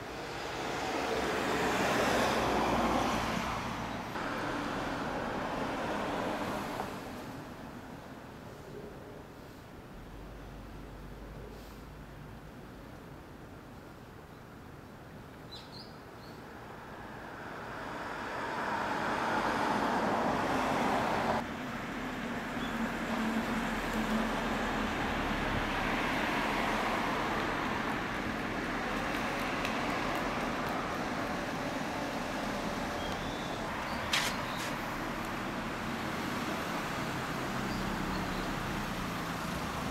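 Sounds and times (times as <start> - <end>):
steady traffic: 0.0 - 39.9
vehicle passing: 0.1 - 7.1, 17.0 - 39.9.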